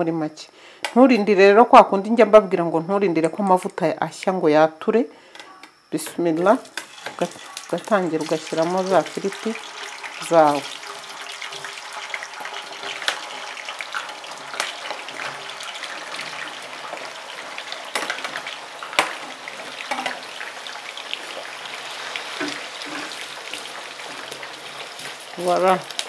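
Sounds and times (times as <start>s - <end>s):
potatoes sizzling in hot oil: 6.4s - 26.0s.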